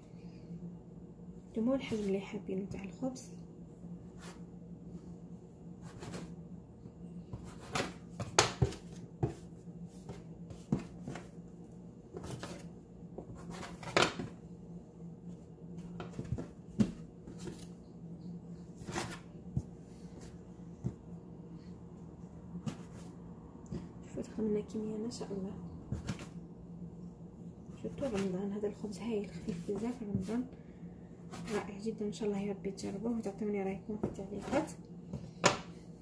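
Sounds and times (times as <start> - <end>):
dough scraper knocking on countertop: 7.7 - 9.4.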